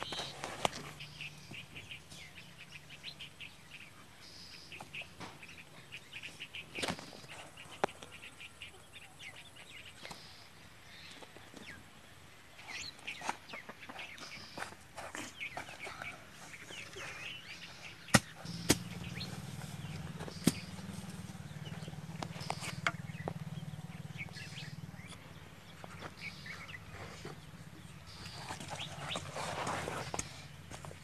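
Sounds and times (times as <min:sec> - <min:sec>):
birds chirping: 0:00.0 - 0:31.0
hoe chopping into dry soil: 0:18.0 - 0:23.3.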